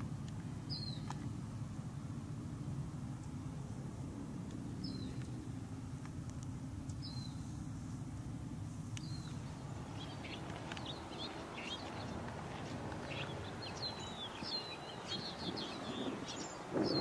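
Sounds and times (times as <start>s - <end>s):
low background hum: 0.0s - 17.0s
songbirds chirping: 0.0s - 17.0s.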